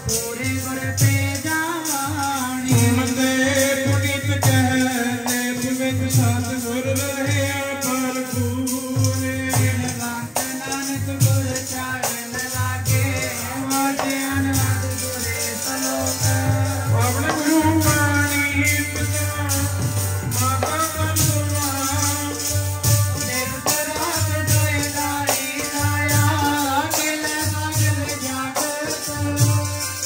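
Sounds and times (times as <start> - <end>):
harmonium tones: 0.0 - 30.0
jingling rattle percussion: 0.0 - 30.0.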